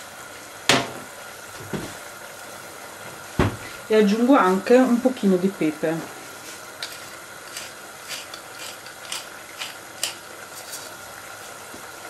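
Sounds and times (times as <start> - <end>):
pepper mill grinding: 6.7 - 11.2.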